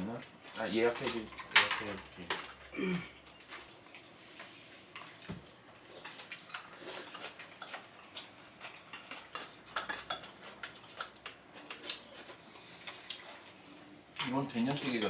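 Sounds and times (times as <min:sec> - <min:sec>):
utensils clinking on plates: 0:00.5 - 0:04.0, 0:06.0 - 0:13.5, 0:14.2 - 0:15.0.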